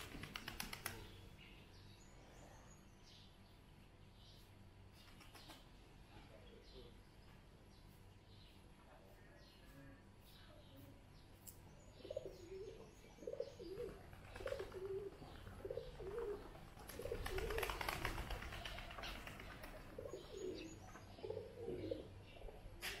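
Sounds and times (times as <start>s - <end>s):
pigeons cooing: 12.0s - 23.0s.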